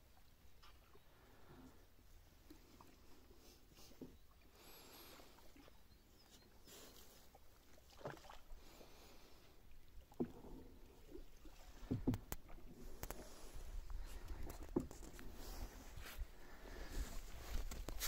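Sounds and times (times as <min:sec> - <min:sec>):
paddle dips and water drips: 0:00.0 - 0:18.0.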